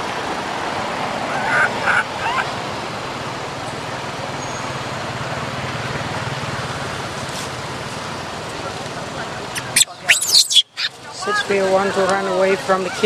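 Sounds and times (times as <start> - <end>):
baby monkey crying calls: 1.3 - 2.5, 9.6 - 10.9.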